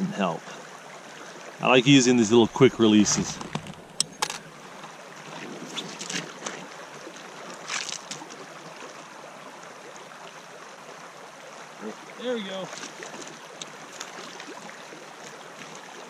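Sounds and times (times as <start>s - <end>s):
creek water rushing: 0.0s - 16.0s.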